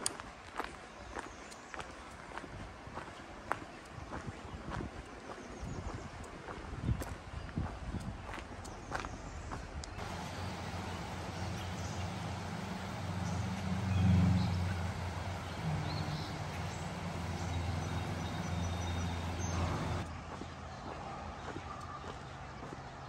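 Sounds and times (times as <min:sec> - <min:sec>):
river water rushing: 0:10.0 - 0:20.0
passing vehicle engine rumble: 0:10.0 - 0:20.1.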